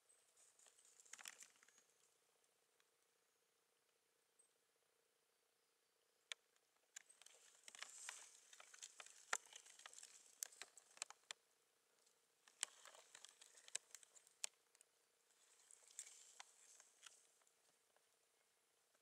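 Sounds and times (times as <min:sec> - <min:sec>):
faint rustling: 0:07.0 - 0:11.4, 0:12.0 - 0:14.6, 0:15.3 - 0:18.1.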